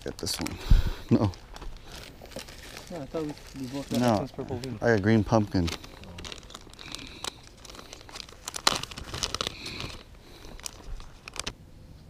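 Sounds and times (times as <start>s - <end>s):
plastic package crinkling: 0.0s - 11.6s.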